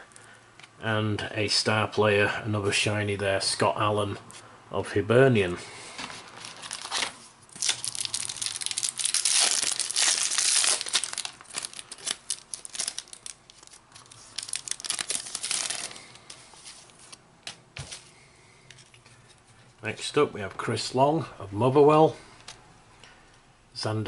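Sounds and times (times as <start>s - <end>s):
wrapper crinkling and tearing: 6.3s - 17.2s.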